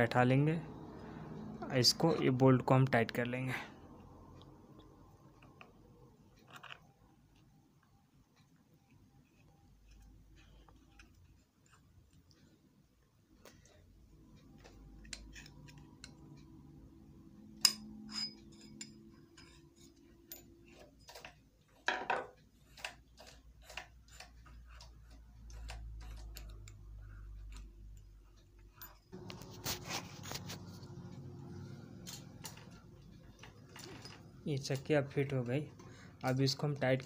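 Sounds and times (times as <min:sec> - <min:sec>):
metal tool clicks and taps: 0:17.6 - 0:19.6
scraping rustling noise: 0:29.2 - 0:34.4.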